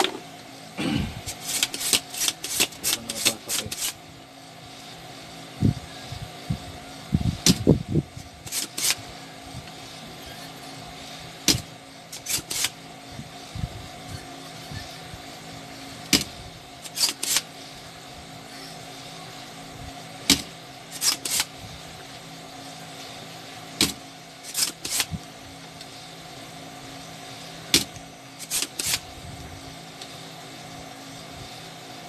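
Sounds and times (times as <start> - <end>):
desoldering pump rasping: 0.0 - 30.4
background hum: 0.0 - 32.0
desoldering pump snapping: 1.2 - 4.0, 8.4 - 9.0, 11.4 - 12.8, 16.0 - 17.5, 20.3 - 21.5, 23.8 - 25.2, 27.7 - 29.1.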